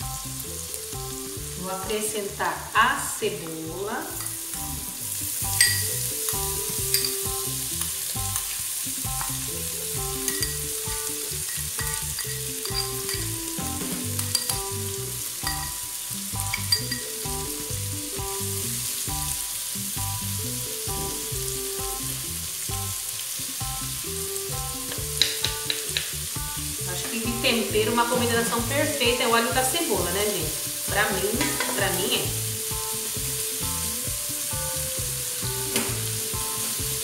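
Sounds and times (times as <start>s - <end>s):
food sizzling in fat: 0.0s - 37.0s
spoon knocking against pot: 5.6s - 5.9s, 24.9s - 26.1s.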